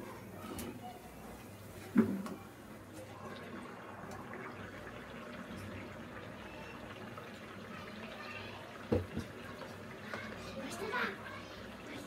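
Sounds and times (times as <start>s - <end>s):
hot oil sizzling: 2.5s - 12.0s.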